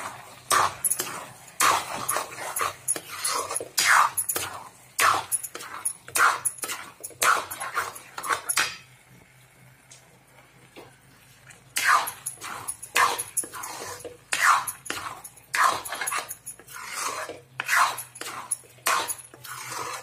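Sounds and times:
steel spoon scraping a pan: 0.0 - 8.9, 11.8 - 20.0.

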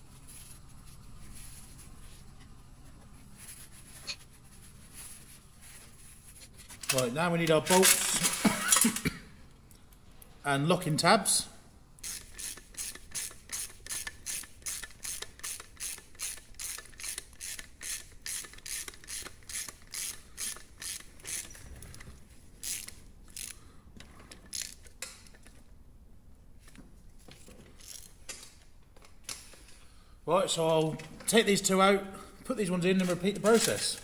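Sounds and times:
socket ratchet clicking: 12.0 - 21.6, 22.6 - 23.6, 24.3 - 25.5.

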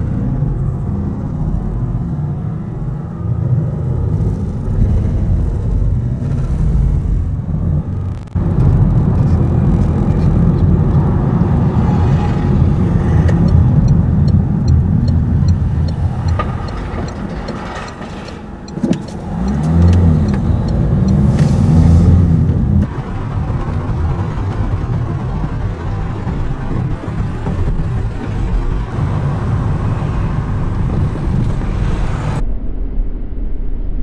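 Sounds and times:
car accelerating: 0.0 - 32.4
car engine and road noise: 0.0 - 32.4
light regular ticking: 8.0 - 22.9.

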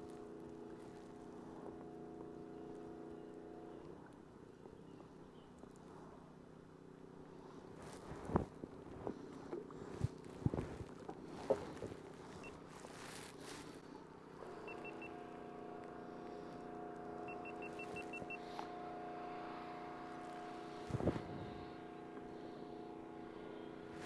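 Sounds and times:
motor humming: 0.0 - 6.1, 7.2 - 24.0
rapid high beeps: 14.6 - 15.2, 17.2 - 18.4.

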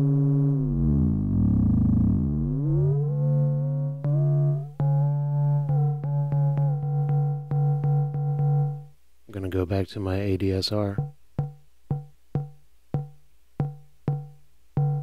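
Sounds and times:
synthesizer fm tones gliding: 0.0 - 6.2.

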